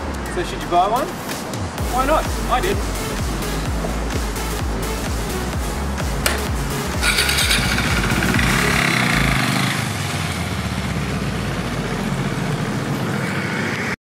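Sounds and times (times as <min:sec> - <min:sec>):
motorcycle engine pulling away: 0:06.3 - 0:13.7.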